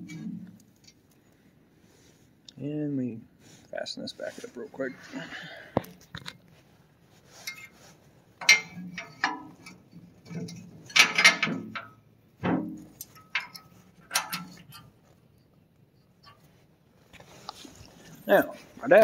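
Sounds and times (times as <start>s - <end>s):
steel clanking and scraping: 7.1s - 15.1s.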